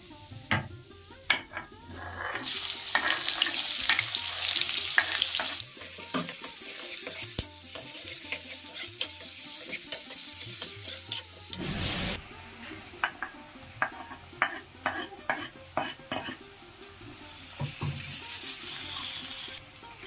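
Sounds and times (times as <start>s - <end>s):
onion sizzling in hot oil: 0.0s - 20.0s
ladle scraping metal pan: 1.5s - 3.6s.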